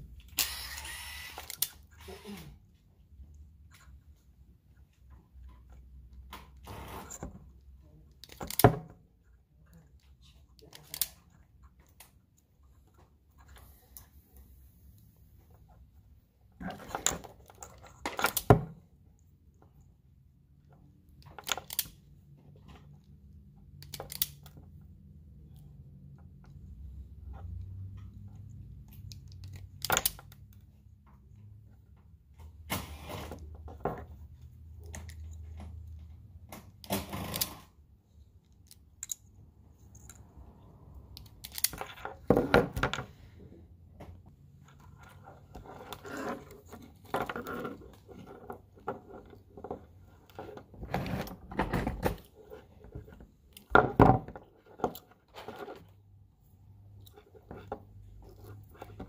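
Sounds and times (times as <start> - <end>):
plastic connectors clicking and rustling: 0.1 - 2.2, 8.1 - 14.1, 16.6 - 19.9, 20.6 - 31.4, 38.3 - 40.3, 41.0 - 43.0.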